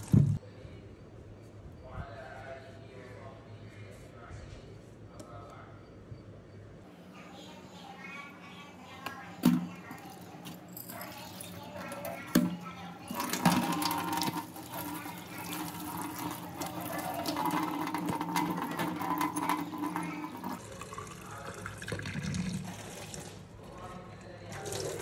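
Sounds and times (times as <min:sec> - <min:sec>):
tap water splashing into sink: 0:12.3 - 0:20.8.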